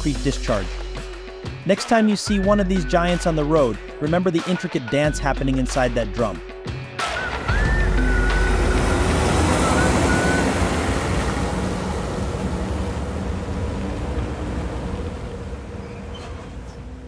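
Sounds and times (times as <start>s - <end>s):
concrete mixer truck rumbling: 7.2s - 17.0s.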